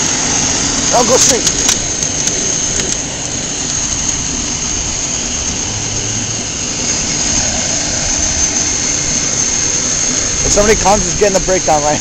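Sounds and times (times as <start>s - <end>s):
mini motorcycle motor running: 0.0s - 12.0s.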